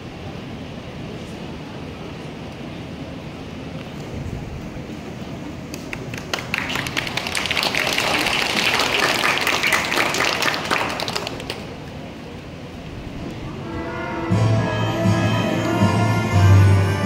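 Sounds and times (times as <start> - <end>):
audience applauding: 5.6 - 11.9.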